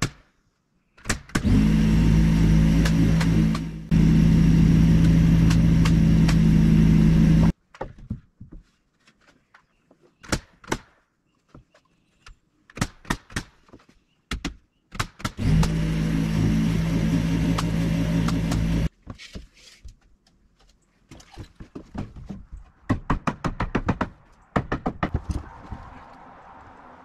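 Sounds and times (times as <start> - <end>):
motor running: 1.4 - 7.5, 15.4 - 18.9
knocks on wood and metal: 21.2 - 25.5.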